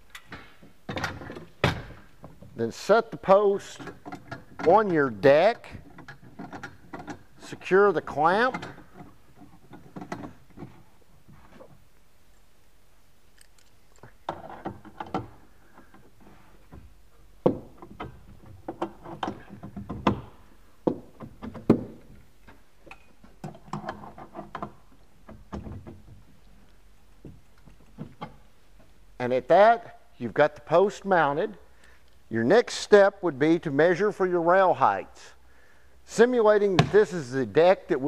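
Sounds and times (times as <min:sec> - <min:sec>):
metal clamp knocking and clanking: 0:03.7 - 0:07.4, 0:08.1 - 0:10.8.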